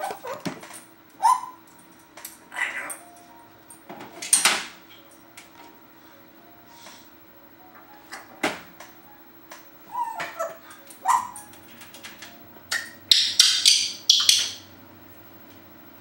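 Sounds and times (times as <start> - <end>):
parrot harsh raspy calls: 0.0 - 0.5, 1.2 - 1.6, 2.5 - 3.1, 9.9 - 11.5, 12.7 - 14.7
parrot squeaky calls: 1.2 - 1.6, 9.9 - 11.5, 12.7 - 14.6.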